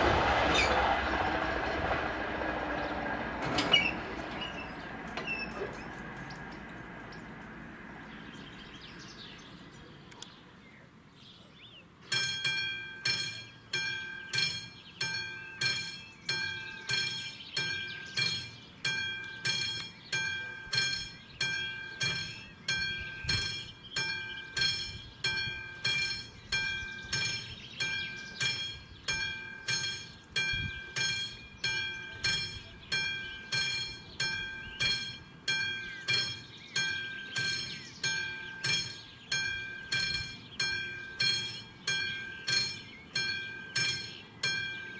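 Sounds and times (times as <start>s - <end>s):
level crossing bell ringing: 24.0s - 44.9s.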